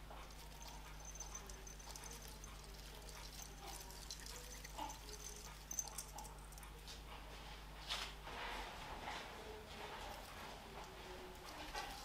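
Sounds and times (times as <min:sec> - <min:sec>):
ornament clicks and rustles: 0:00.0 - 0:06.7
steady low hum: 0:00.0 - 0:12.0.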